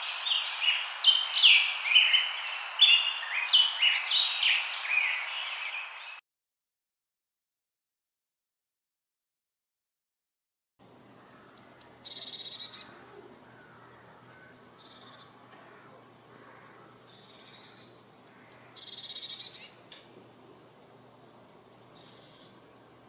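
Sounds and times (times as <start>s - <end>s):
small bird singing: 0.0s - 6.2s, 11.2s - 19.9s, 21.2s - 23.0s.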